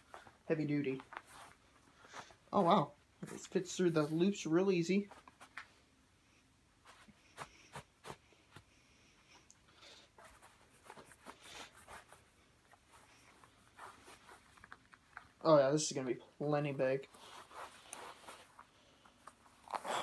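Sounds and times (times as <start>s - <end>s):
cord rustling: 0.0s - 5.8s, 9.3s - 15.6s, 16.7s - 20.0s.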